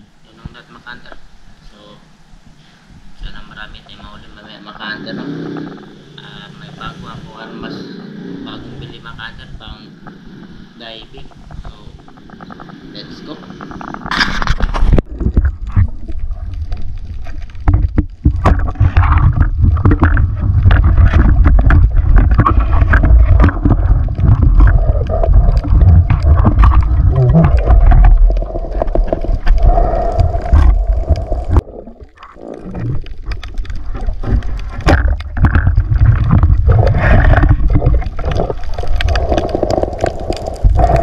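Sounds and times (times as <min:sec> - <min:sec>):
steady hum: 0:00.0 - 0:41.0
underwater clicks and gurgles: 0:02.4 - 0:06.0, 0:08.8 - 0:41.0
underwater rumble of moving water: 0:03.0 - 0:41.0.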